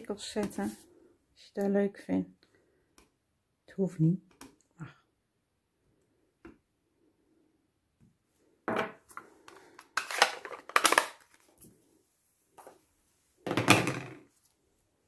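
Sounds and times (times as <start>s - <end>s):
plastic objects clattering and scraping: 8.7s - 11.8s, 13.5s - 14.5s.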